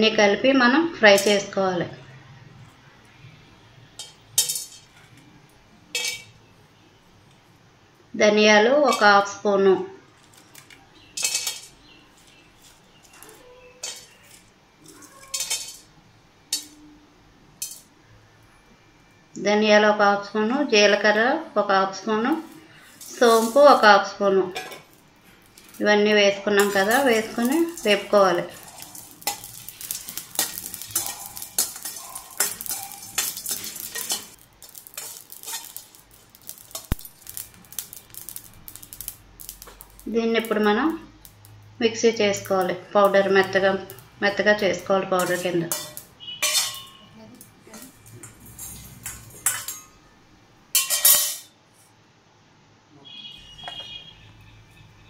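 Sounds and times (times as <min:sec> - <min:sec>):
seeds rattling against metal: 0:01.1 - 0:01.4, 0:03.8 - 0:06.5, 0:08.8 - 0:09.3, 0:10.0 - 0:16.9, 0:17.6 - 0:17.9, 0:22.4 - 0:41.6, 0:42.4 - 0:50.0, 0:50.7 - 0:51.6
whole spices clinking into steel pan: 0:04.0 - 0:05.2, 0:05.9 - 0:06.4, 0:08.9 - 0:09.2, 0:10.6 - 0:12.4, 0:13.8 - 0:14.5, 0:15.2 - 0:15.9, 0:16.5 - 0:16.9, 0:17.6 - 0:18.0, 0:22.8 - 0:23.9, 0:24.5 - 0:25.8, 0:26.5 - 0:41.6, 0:42.4 - 0:50.0, 0:50.7 - 0:51.6.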